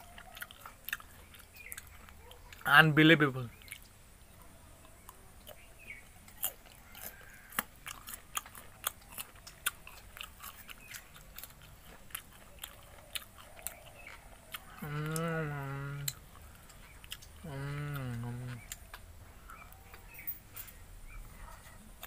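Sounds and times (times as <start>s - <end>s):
person chewing with crunches: 0.0s - 2.7s, 3.5s - 20.8s
person humming mmm: 14.8s - 16.2s, 17.4s - 18.8s.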